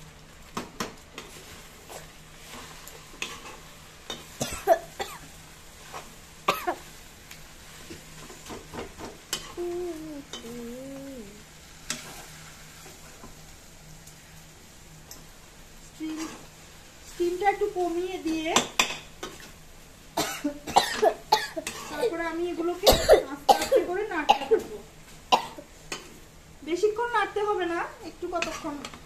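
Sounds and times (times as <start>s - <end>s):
vegetables sizzling in oil: 0.0s - 29.0s
spatula scraping in a pan: 1.2s - 9.6s, 16.0s - 19.6s, 20.9s - 22.8s, 28.1s - 29.0s
person coughing: 4.4s - 5.2s, 20.2s - 21.6s, 22.8s - 24.6s.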